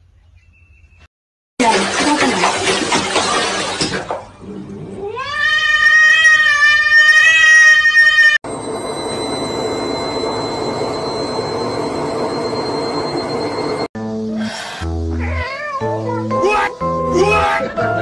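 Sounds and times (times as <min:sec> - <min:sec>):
washing machine humming: 0:01.6 - 0:04.4, 0:08.4 - 0:13.9.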